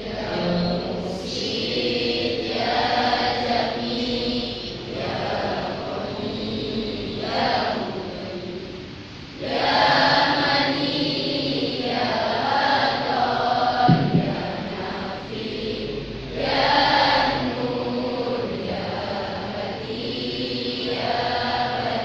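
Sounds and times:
choir singing: 0:00.0 - 0:22.0
low thump: 0:13.8 - 0:14.7.

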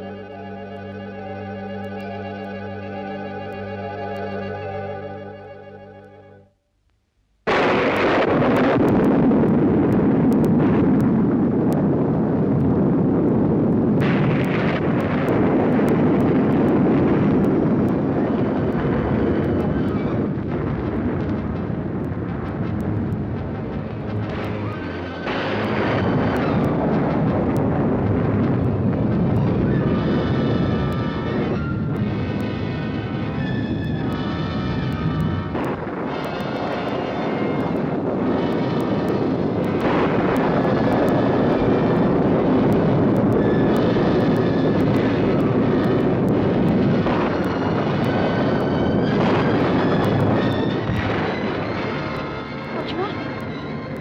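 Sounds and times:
sustained instrument chords: 0:00.0 - 0:06.7, 0:14.0 - 0:54.0
dramatic film score: 0:14.0 - 0:54.0.

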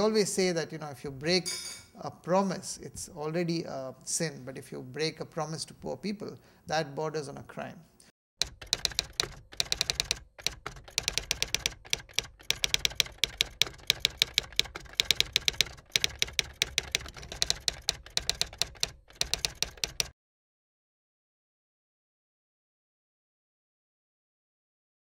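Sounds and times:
keyboard typing clicks: 0:08.4 - 0:20.2.

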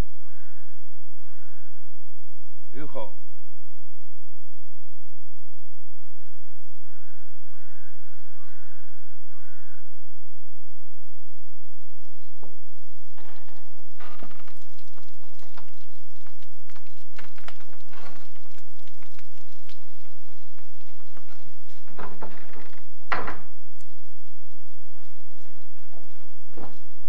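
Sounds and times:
things being moved about: 0:12.4 - 0:23.6.

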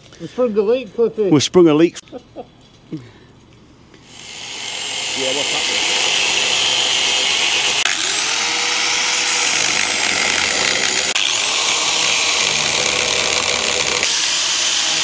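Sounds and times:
angle grinder cutting steel: 0:04.1 - 0:15.0.

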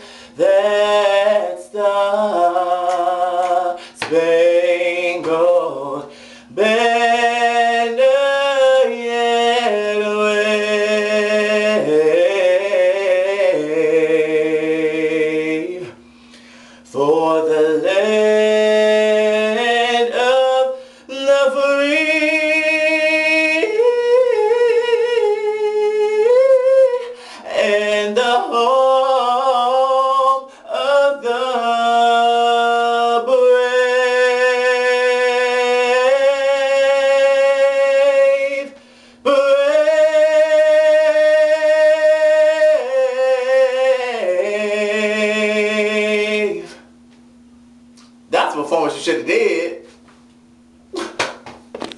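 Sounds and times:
young man singing: 0:00.0 - 0:16.0, 0:16.8 - 0:46.9, 0:48.3 - 0:49.9.

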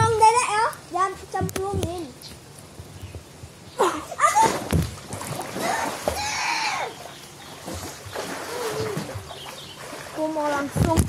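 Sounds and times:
child's wordless calls: 0:05.6 - 0:07.0.

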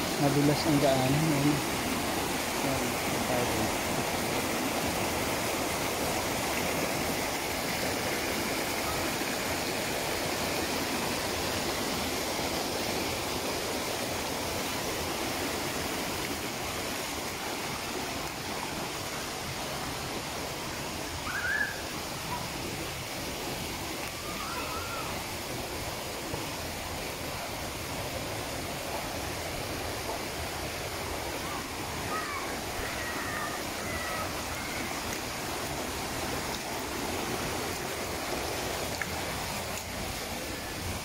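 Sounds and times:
stream rushing over rocks: 0:00.0 - 0:41.0.

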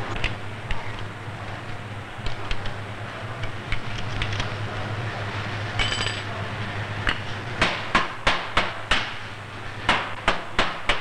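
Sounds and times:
steady low hum: 0:00.0 - 0:11.0
metallic clink: 0:05.8 - 0:06.3.

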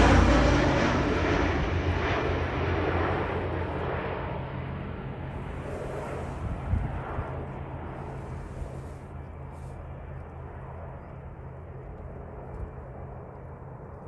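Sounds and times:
jet engine rushing hum: 0:00.0 - 0:09.9
wind rumbling on microphone: 0:05.1 - 0:14.0.

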